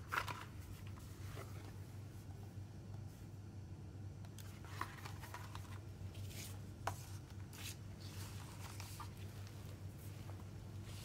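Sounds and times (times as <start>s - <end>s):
paper rustling: 0.0s - 1.8s, 4.4s - 11.0s
low steady hum: 0.0s - 11.0s.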